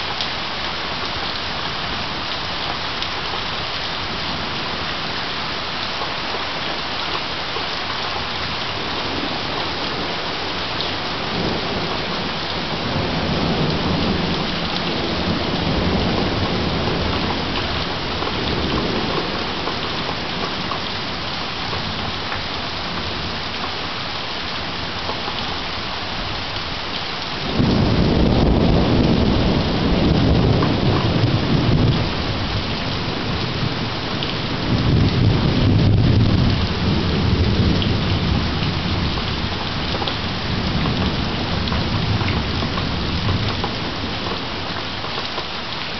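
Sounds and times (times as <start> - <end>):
steady rain: 0.0 - 45.9
thunder rumbling: 8.7 - 20.7, 27.4 - 44.7.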